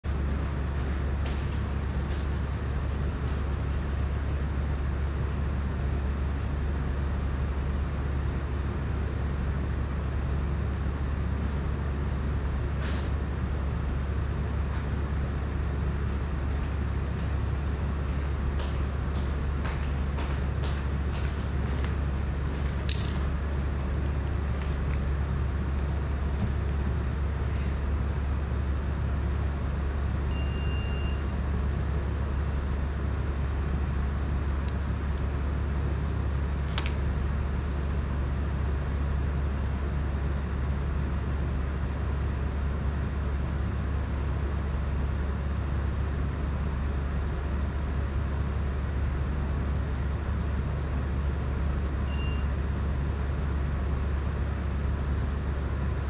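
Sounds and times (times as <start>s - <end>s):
fan humming and rushing: 0.1s - 56.0s
short high beep: 30.3s - 31.3s, 52.1s - 52.5s.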